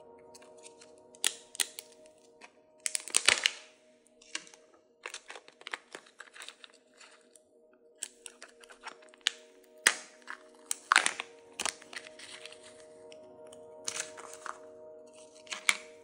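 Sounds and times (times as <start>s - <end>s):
soft background music: 0.0s - 16.0s
plastic seal crinkling and crackling: 0.3s - 7.4s, 8.0s - 13.2s, 13.8s - 16.0s.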